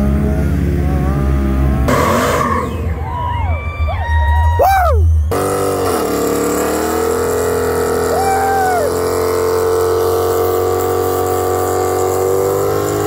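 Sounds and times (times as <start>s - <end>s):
car engine revving high: 0.0s - 3.0s, 4.8s - 13.0s
rising and falling whoop: 2.2s - 5.4s, 7.8s - 9.3s.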